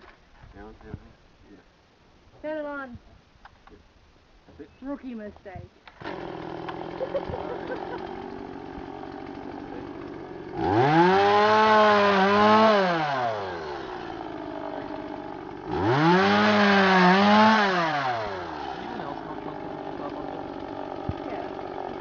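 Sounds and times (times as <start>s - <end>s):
chainsaw idling and revving: 5.9s - 22.0s.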